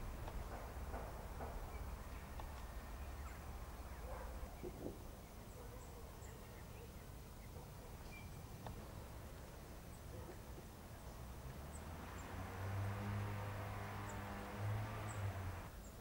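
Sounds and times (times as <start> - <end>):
low outdoor rumble: 0.0 - 6.3, 7.1 - 16.0
faint bird chirps: 1.6 - 9.2.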